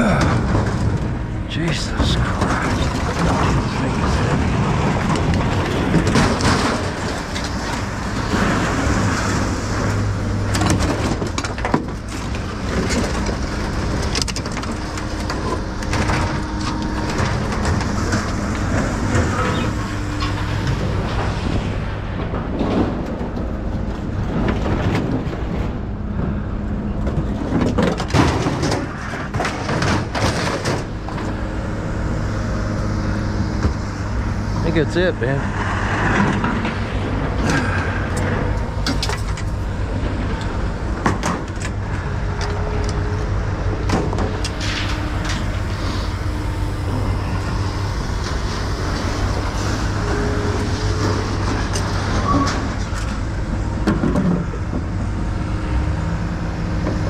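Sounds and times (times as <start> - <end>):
metal appliances scraping and clanging: 0.1 - 22.3, 27.3 - 54.5
vehicle engine idling: 28.9 - 57.0.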